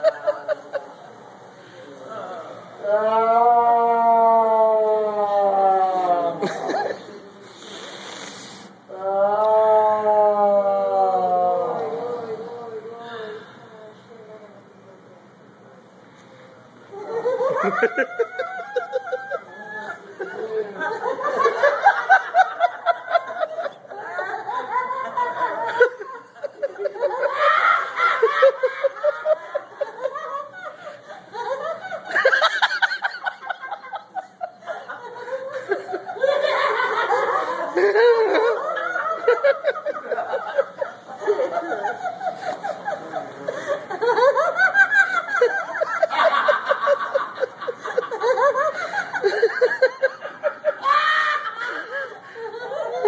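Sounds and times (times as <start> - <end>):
people laughing hard: 0.0 - 1.1, 5.3 - 7.3, 16.9 - 53.0
higher voice laughing: 5.8 - 7.2, 16.9 - 53.0
rapid ha-ha-ha laughter: 17.0 - 53.0.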